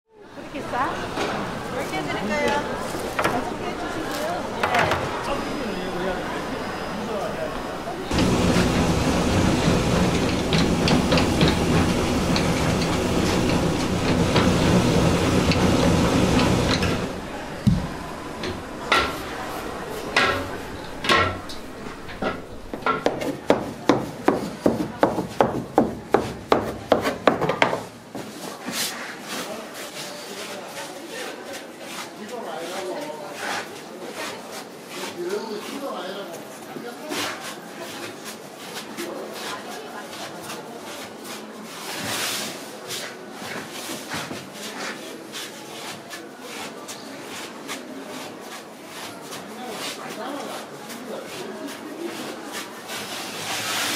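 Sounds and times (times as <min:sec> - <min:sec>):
hands rolling dough on board: 0:22.5 - 0:28.9.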